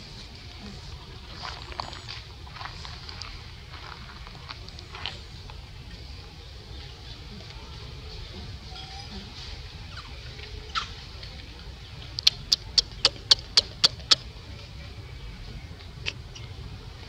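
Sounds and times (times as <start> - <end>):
animal sharp chirps: 12.2 - 14.2.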